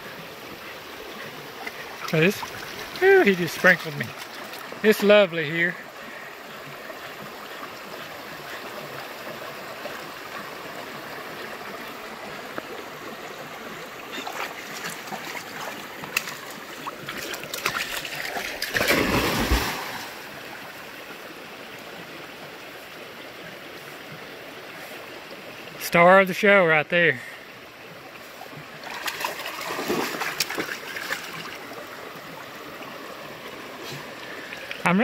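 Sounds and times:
creek water running over rocks: 0.0 - 35.0
dog splashing through water: 14.2 - 20.2, 28.8 - 31.5.

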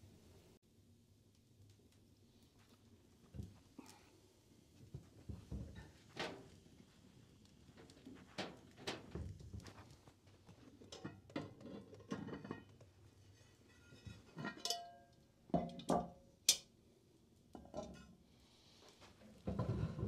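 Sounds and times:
pots and lids clinking: 10.8 - 12.8, 13.4 - 16.7, 17.6 - 18.2.

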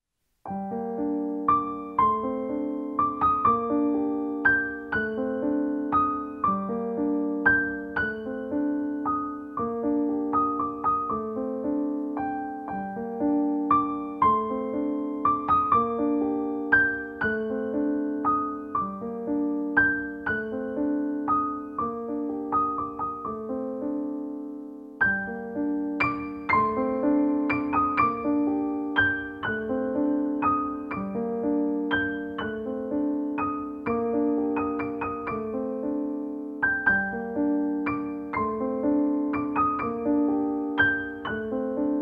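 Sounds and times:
piano playing chords: 0.4 - 42.0.

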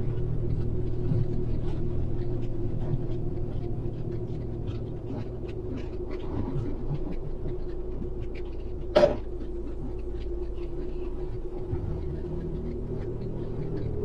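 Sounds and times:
constant hum: 0.0 - 14.0.

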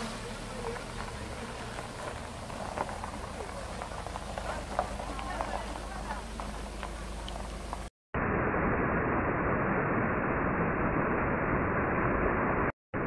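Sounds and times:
faint outdoor ambience: 0.0 - 7.9.

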